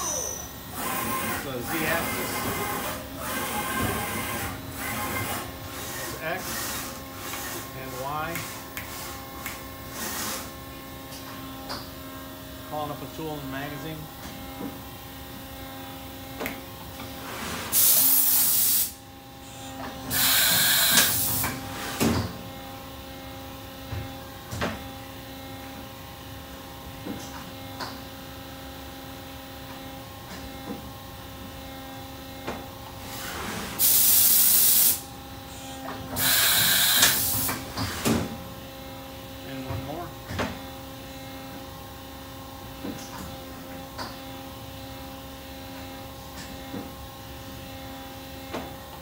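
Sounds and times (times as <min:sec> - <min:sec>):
machine electrical hum: 0:00.0 - 0:49.0
compressed air hissing: 0:33.8 - 0:35.0.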